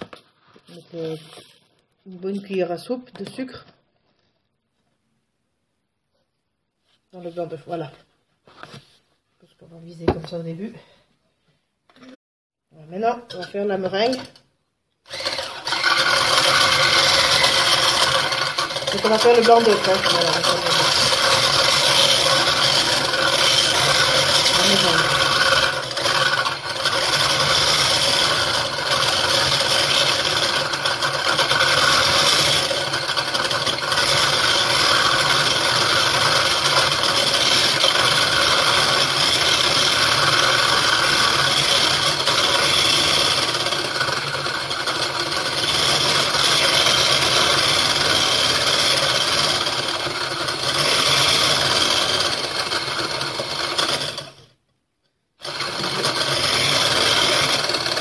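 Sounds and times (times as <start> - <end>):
electric whisk rattling in beaker: 15.1 - 54.4, 55.4 - 58.0.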